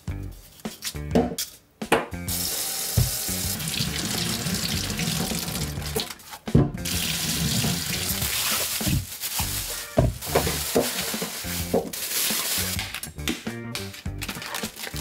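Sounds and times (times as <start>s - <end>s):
tap water running into sink: 2.3s - 6.2s, 6.9s - 9.0s.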